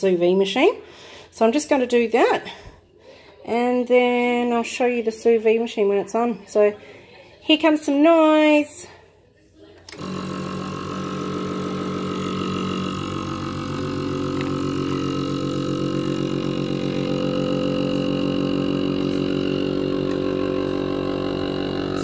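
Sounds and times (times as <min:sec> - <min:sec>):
vacuum sealer pump motor humming: 0:09.9 - 0:22.0.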